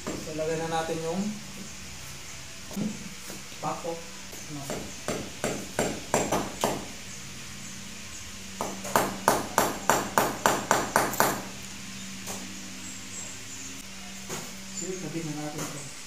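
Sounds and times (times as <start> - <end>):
hammer hitting nail: 4.7 - 6.9, 8.6 - 11.5.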